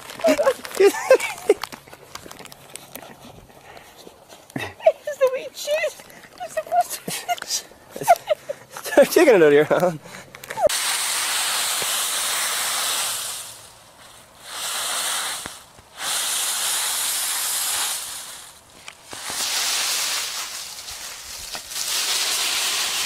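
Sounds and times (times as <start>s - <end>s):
dry leaves rustling and crunching: 0.0s - 3.1s, 10.7s - 23.0s.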